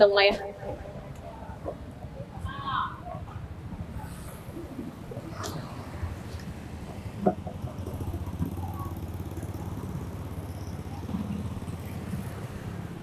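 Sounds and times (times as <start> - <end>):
small engine idling: 7.0 - 13.0.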